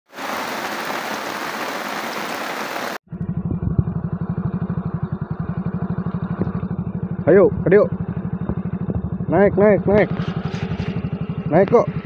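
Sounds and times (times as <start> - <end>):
motorcycle engine putter: 9.9 - 11.8.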